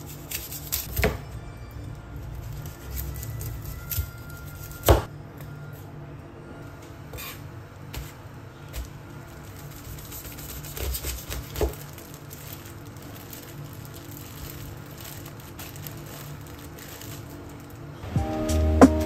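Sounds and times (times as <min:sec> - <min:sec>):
background music: 0:00.9 - 0:05.0, 0:18.0 - 0:19.0
plastic packaging crinkling: 0:08.8 - 0:18.0.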